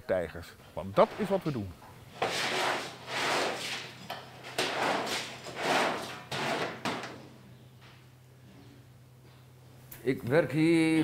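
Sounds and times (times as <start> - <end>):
cleaning tool scraping wet concrete: 2.1 - 7.0.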